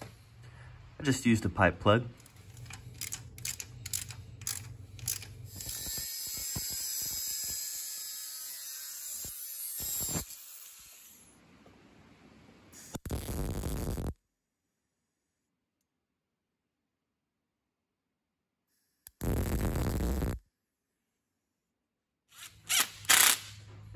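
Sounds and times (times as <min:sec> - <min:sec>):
metallic clicks on hose fitting: 0:02.2 - 0:05.4
welder crackling: 0:02.2 - 0:11.4, 0:12.8 - 0:14.1, 0:19.1 - 0:20.4
angle grinder cutting metal pipe: 0:05.5 - 0:11.4.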